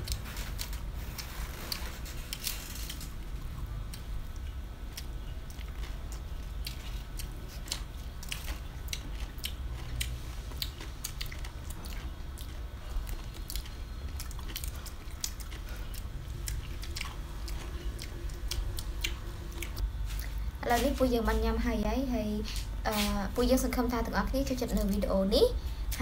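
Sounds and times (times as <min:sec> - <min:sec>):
people chewing food: 0:00.0 - 0:20.5.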